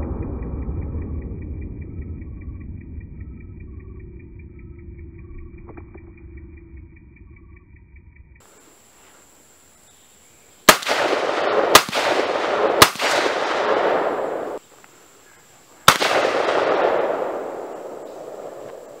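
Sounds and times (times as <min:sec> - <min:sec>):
rifle shots with echo: 0:10.7 - 0:14.6, 0:15.8 - 0:19.0.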